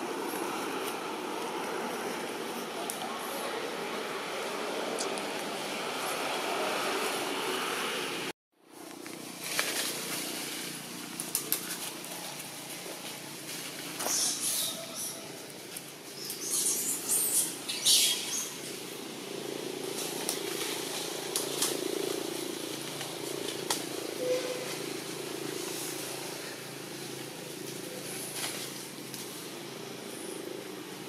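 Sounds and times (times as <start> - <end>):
engine hum: 0.0 - 31.0
rustling: 8.8 - 14.8.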